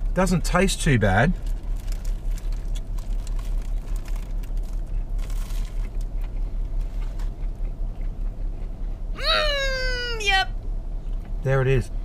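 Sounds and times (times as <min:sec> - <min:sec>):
car engine idling: 0:00.0 - 0:12.0
eating clicks and crackles: 0:01.4 - 0:08.3.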